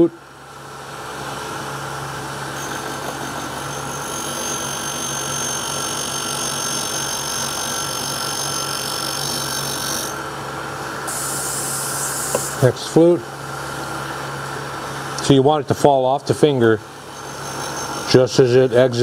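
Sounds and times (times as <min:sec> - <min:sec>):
high grinding whine: 0:00.0 - 0:19.0
grinding wheel motor hum: 0:00.6 - 0:10.8, 0:16.9 - 0:19.0.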